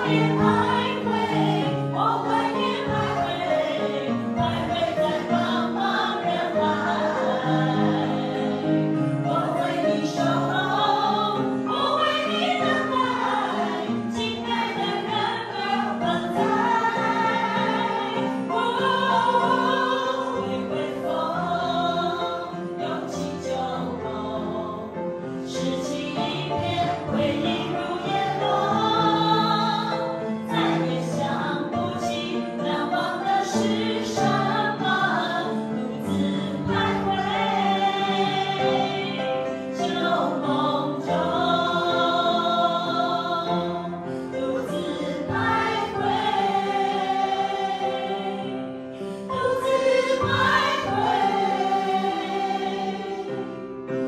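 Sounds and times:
group of women singing: 0.0 - 53.5
upright piano: 0.0 - 54.0.

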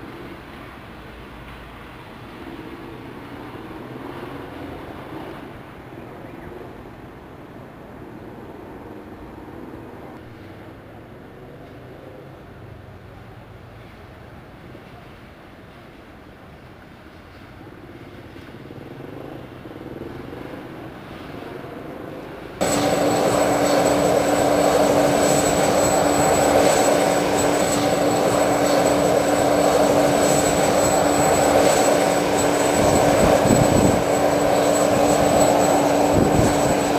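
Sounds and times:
aircraft engines running: 2.1 - 12.5, 17.3 - 36.9
thin high engine whine: 21.0 - 36.9.

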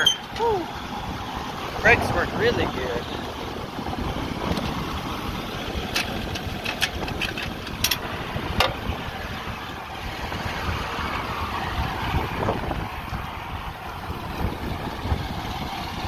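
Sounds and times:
tractor engine running: 0.0 - 16.0
sharp clicks and rattles: 4.4 - 4.9, 5.6 - 8.9.

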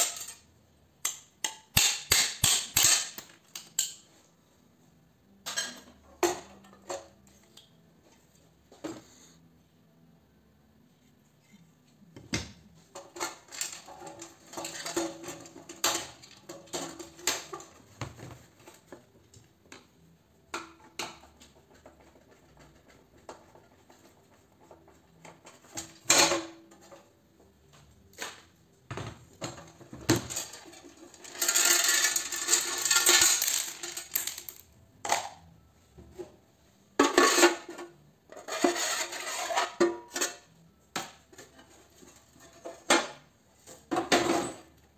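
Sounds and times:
rattling and scraping: 29.6 - 34.6.

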